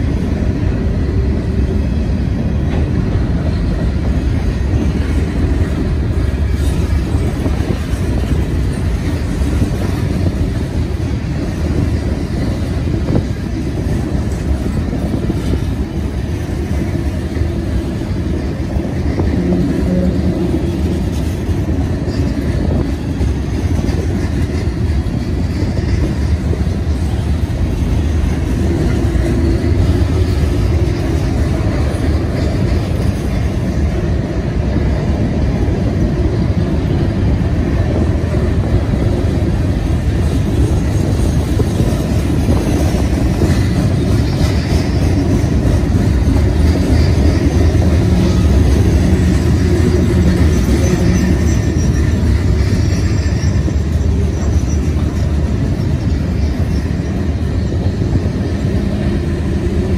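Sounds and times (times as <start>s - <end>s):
train wheels rolling on rails: 0.0s - 59.9s.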